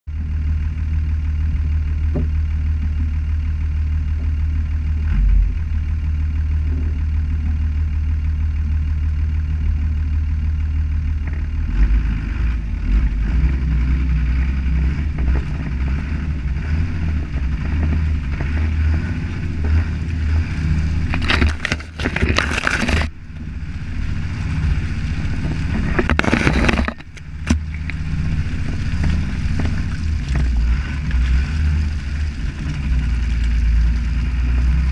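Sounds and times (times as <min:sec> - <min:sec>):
diesel engine rumbling: 0:00.0 - 0:34.9
bushes scraping along vehicle: 0:14.7 - 0:34.8.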